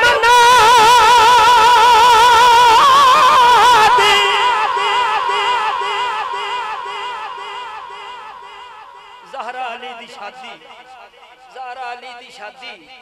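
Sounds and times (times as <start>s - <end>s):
man singing with vibrato: 0.0s - 13.0s.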